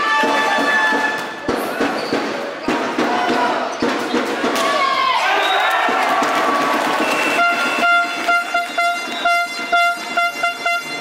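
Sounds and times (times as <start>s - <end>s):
crowd cheering: 3.0s - 9.7s
plastic fan horn tooting: 7.2s - 11.0s.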